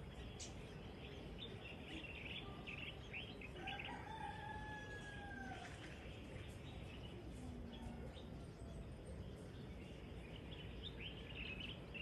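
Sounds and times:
small birds chirping: 0.0 - 4.1, 5.6 - 12.0
rooster crowing: 3.6 - 5.6.

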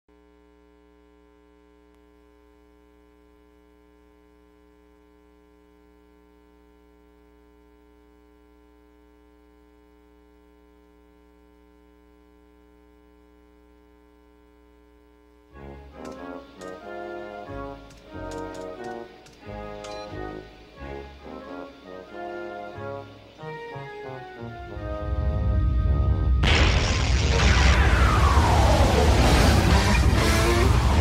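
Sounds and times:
electrical mains hum: 0.1 - 31.0
music: 15.5 - 31.0.

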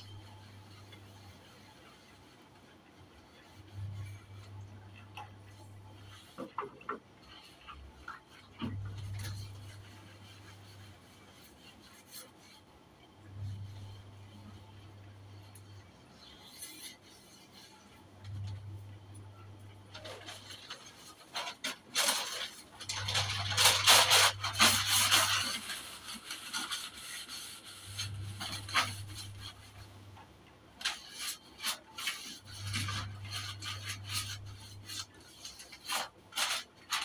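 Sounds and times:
cloth scrubbing shelves: 0.0 - 37.0
low hum: 13.0 - 16.4.

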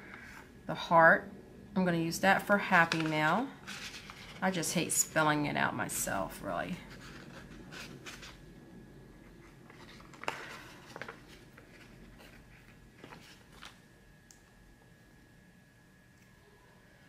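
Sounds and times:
paper sticker sheet rustling: 2.9 - 4.5, 9.4 - 13.8.

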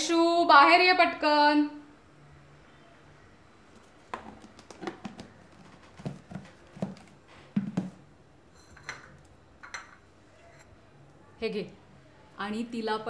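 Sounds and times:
soft knocks of objects: 4.1 - 8.0.

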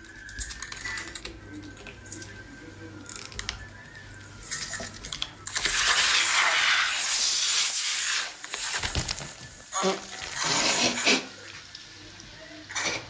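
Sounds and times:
cola hissing and foaming: 4.4 - 13.0.

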